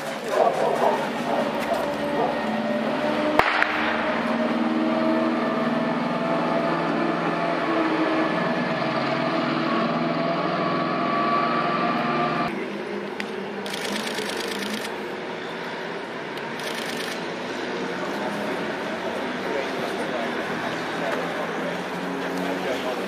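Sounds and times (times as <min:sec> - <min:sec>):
motor droning: 0:00.8 - 0:12.5.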